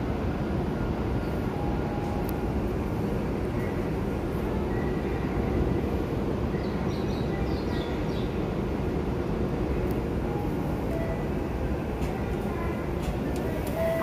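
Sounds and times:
platform background noise: 0:09.5 - 0:14.0.

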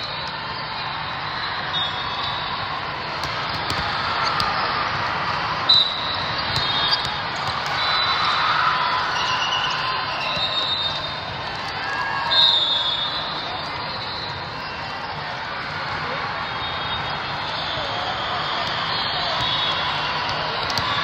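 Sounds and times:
echoing crowd hubbub: 0:00.0 - 0:21.0
whistles: 0:01.6 - 0:02.5, 0:05.7 - 0:11.2, 0:12.2 - 0:15.0, 0:16.6 - 0:21.0
volleyball strike: 0:03.1 - 0:08.1, 0:18.6 - 0:21.0
shoe squeaks: 0:05.8 - 0:07.2, 0:09.1 - 0:11.2.

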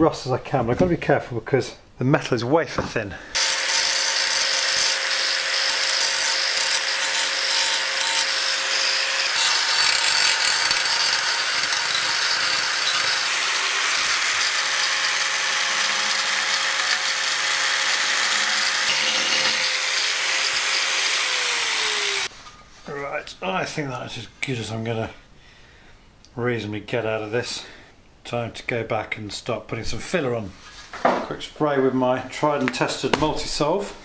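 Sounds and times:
angle grinder grinding metal: 0:03.4 - 0:22.3
grinder motor whine: 0:03.4 - 0:22.3.

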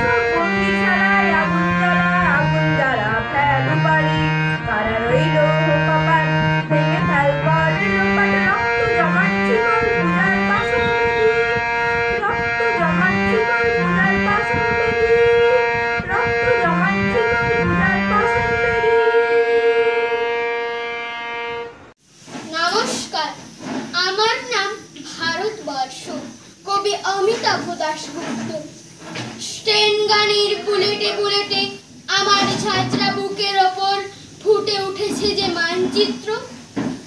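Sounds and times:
drum strokes: 0:00.0 - 0:19.2, 0:22.2 - 0:24.2, 0:32.1 - 0:33.5
person singing: 0:00.0 - 0:20.7
harmonium melody and chords: 0:00.0 - 0:21.9.

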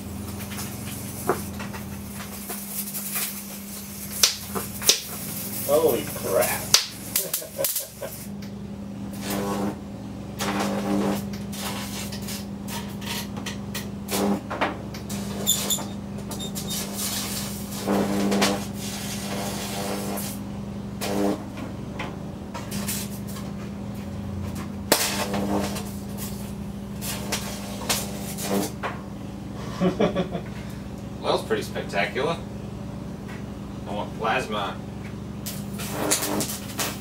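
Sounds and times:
electric arcing crackling: 0:00.0 - 0:08.5, 0:09.1 - 0:09.8, 0:10.4 - 0:15.8, 0:16.4 - 0:21.5, 0:22.6 - 0:24.0, 0:24.8 - 0:28.8, 0:35.4 - 0:37.0
transformer humming: 0:00.0 - 0:12.7.

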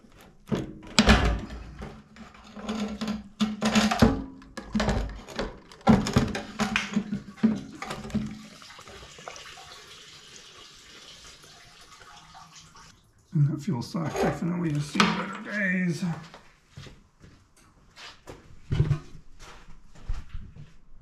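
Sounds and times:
knocks and scrapes against tank: 0:00.9 - 0:08.3
fuel splashing and dripping: 0:07.7 - 0:13.4.

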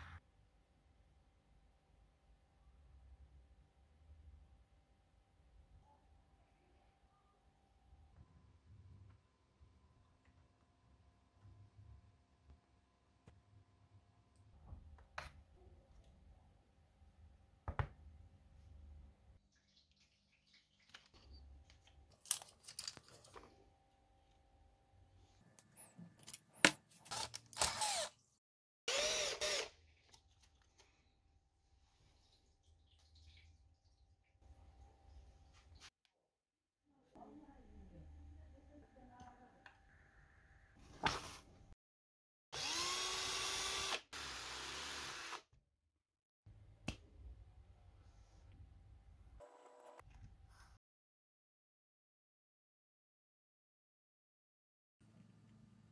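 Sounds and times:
power drill whining: 0:27.1 - 0:28.1, 0:28.9 - 0:29.7, 0:42.6 - 0:45.4.

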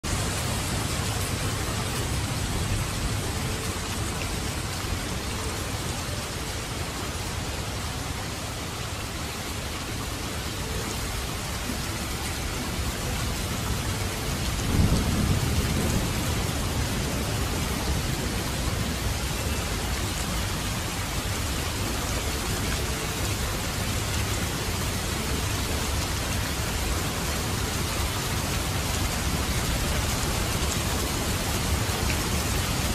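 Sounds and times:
steady rain: 0:00.0 - 0:32.9
low rumble of thunder: 0:14.4 - 0:19.2.

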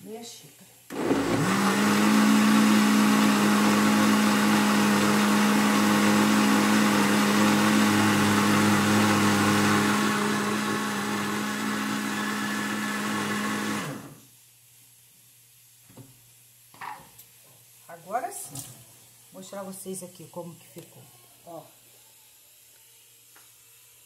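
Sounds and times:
blender running: 0:00.9 - 0:14.2.

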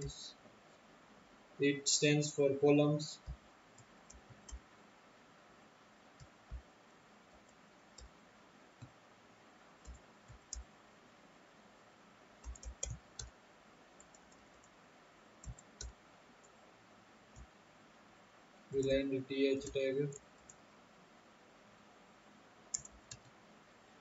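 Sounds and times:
faint background hiss: 0:00.0 - 0:24.0
computer keyboard keystrokes: 0:09.8 - 0:10.6, 0:12.4 - 0:13.3, 0:15.4 - 0:16.0, 0:22.7 - 0:23.3.

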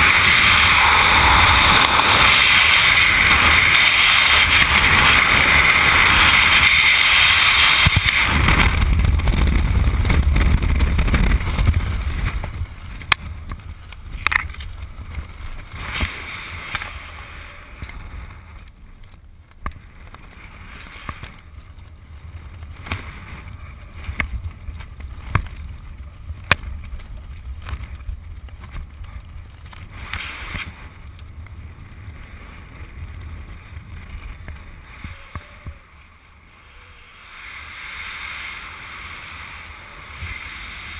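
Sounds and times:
strong wind on microphone: 0:00.0 - 0:18.7
parachute flapping and clicking: 0:17.8 - 0:36.2.

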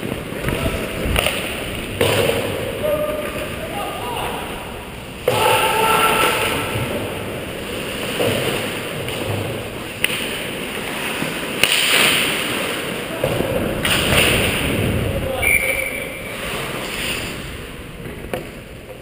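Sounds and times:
stick hitting puck: 0:10.0 - 0:10.4, 0:11.1 - 0:14.6
skate blades scraping ice: 0:16.3 - 0:17.6.

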